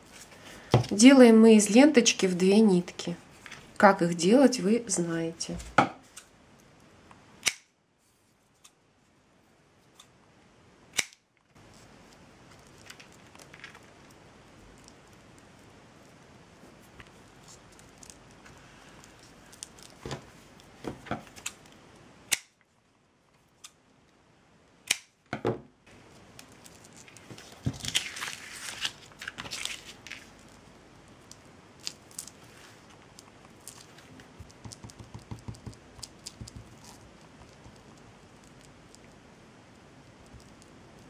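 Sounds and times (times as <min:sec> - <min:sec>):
background hiss: 0:00.0 - 0:41.0
crinkling and rustling: 0:02.9 - 0:04.2, 0:11.4 - 0:22.1, 0:25.9 - 0:39.4.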